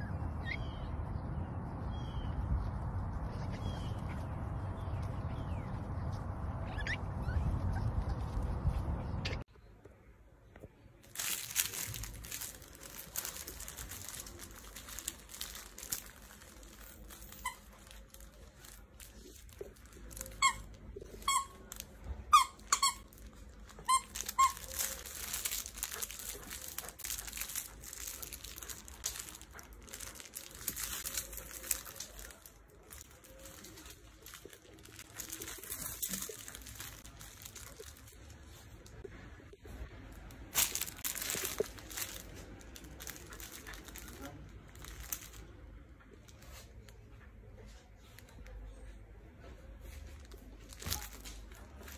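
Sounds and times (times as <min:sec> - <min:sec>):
squeaky toy squeaks: 0:06.6 - 0:07.9, 0:11.2 - 0:37.8
dog chewing plush toy: 0:23.8 - 0:32.1.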